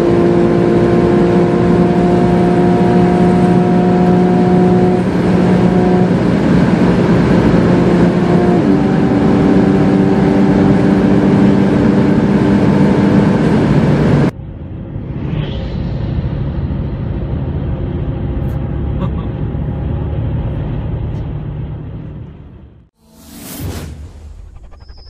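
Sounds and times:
car engine pulling hard: 0.0 - 14.3
road and wind noise drone: 0.0 - 25.0.

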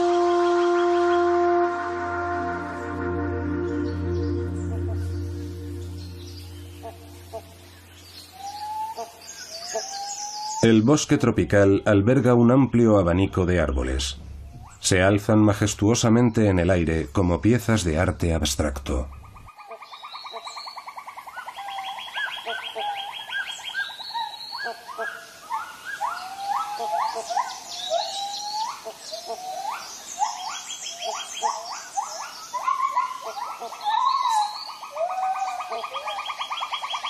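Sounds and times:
higher trill: 0.0 - 8.5
fast-pulsing trill: 1.9 - 8.4
birds whistling and chirping: 3.5 - 10.8, 13.6 - 14.8, 19.1 - 37.0.

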